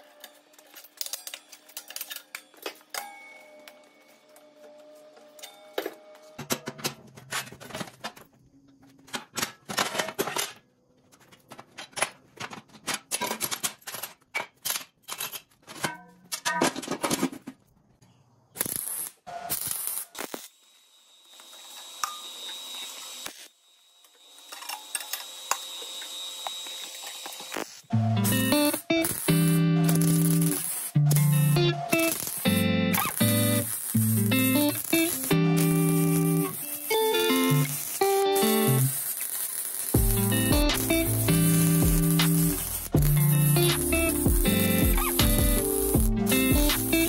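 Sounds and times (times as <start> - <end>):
background music: 27.9 - 38.9, 40.0 - 47.0.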